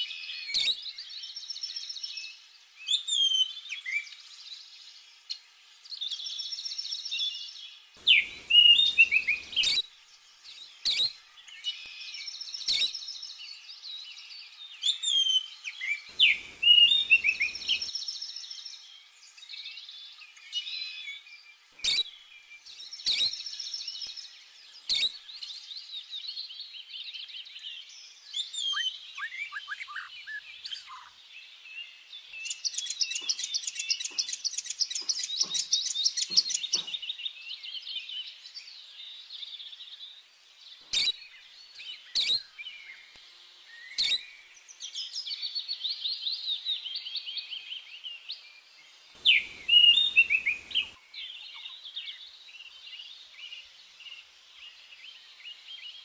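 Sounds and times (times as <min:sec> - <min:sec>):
small birds chirping: 0:00.0 - 0:56.0
fast bird trill: 0:08.0 - 0:09.8, 0:16.1 - 0:17.9, 0:49.2 - 0:51.0.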